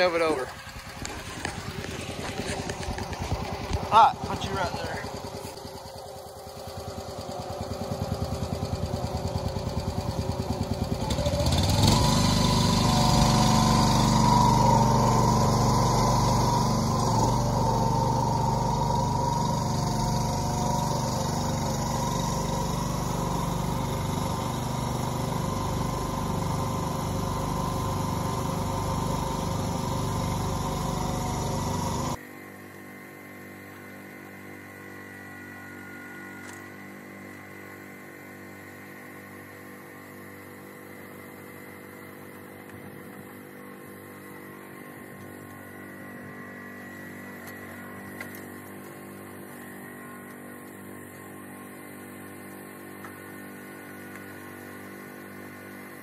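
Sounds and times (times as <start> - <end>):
forklift engine idling and revving: 0.0 - 32.2.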